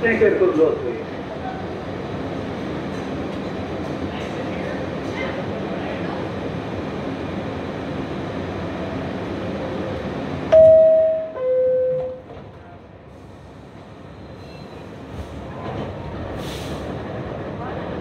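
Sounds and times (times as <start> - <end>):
train rumble: 0.0 - 18.0
two-tone descending door chime: 10.5 - 12.2.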